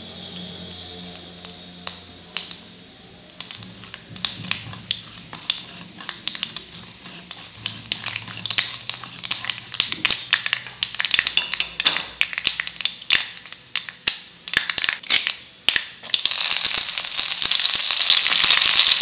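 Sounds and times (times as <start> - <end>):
seeds sizzling and popping in oil: 0.0 - 19.0
wooden spatula stirring: 3.4 - 12.2.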